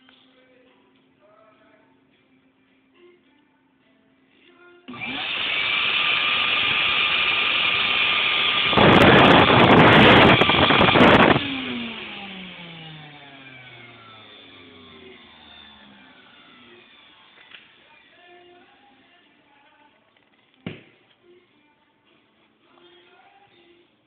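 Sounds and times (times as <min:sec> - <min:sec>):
electric sander running: 0:04.9 - 0:17.8
sander winding down whine: 0:04.9 - 0:17.8.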